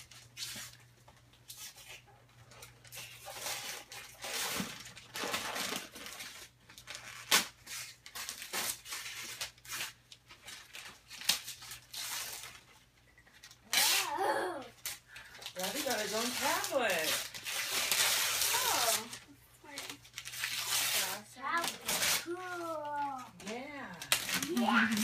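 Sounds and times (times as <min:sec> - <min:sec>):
wrapping paper tearing and rustling: 0:00.0 - 0:25.0.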